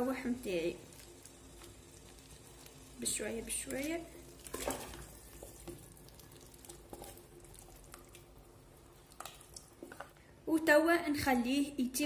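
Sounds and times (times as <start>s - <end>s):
food splashing into water: 3.7s - 10.0s
spatula scraping a pot: 6.7s - 7.3s.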